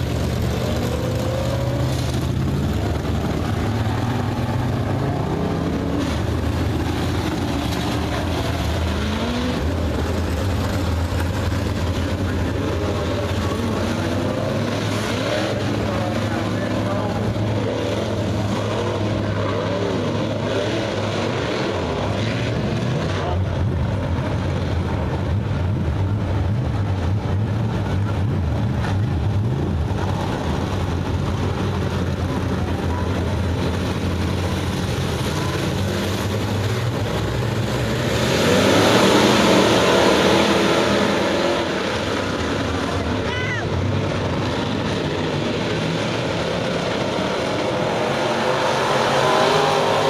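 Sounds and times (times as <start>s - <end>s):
race car engines droning: 0.0s - 50.0s.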